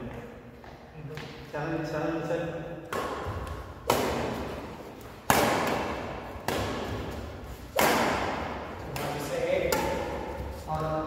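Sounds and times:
racket hitting shuttlecock: 0:02.8 - 0:10.8.

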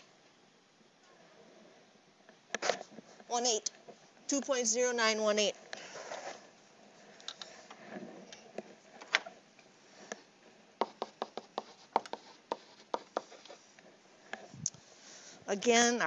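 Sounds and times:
stylus tapping on pen tablet: 0:10.8 - 0:13.3.

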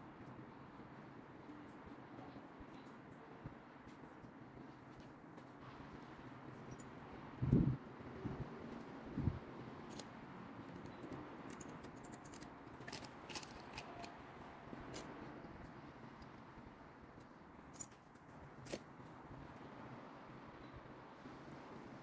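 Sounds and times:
small metallic clicks: 0:09.8 - 0:10.1, 0:10.7 - 0:14.2.

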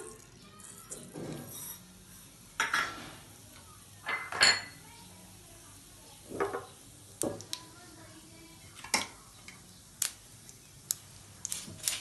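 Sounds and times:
seeds sizzling in oil: 0:04.8 - 0:12.0.

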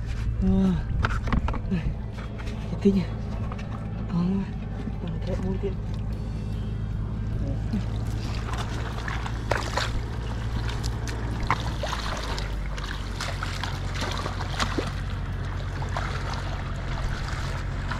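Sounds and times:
steady low hum: 0:00.0 - 0:17.9
footsteps splashing through muddy water: 0:07.6 - 0:17.9.

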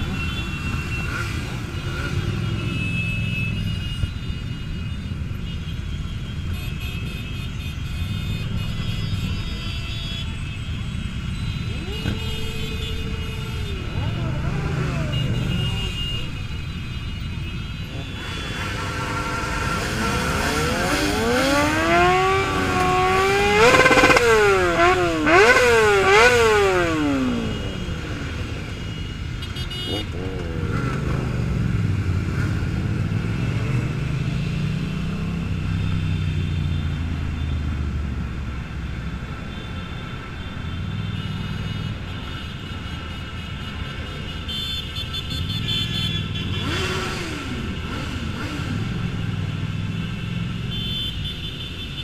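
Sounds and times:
motorcycles rumbling at low revs: 0:10.8 - 0:38.7, 0:45.8 - 0:51.2
motorcycle engine revving: 0:11.2 - 0:16.4, 0:17.9 - 0:28.8, 0:29.7 - 0:37.3, 0:45.8 - 0:50.8.

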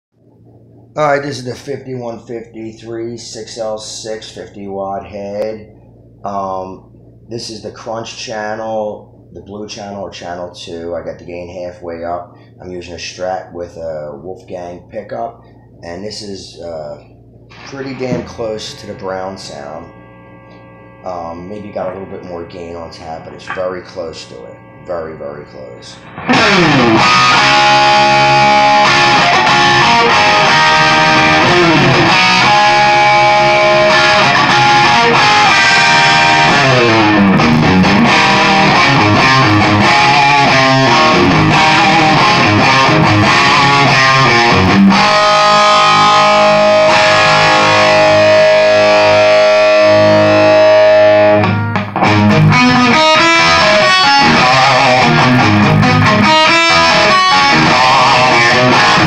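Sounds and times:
distorted electric guitar: 0:15.0 - 0:59.0.

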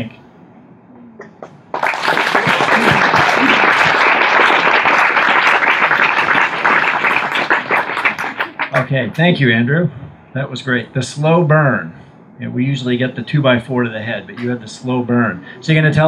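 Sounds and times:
audience applause: 0:01.7 - 0:08.9.

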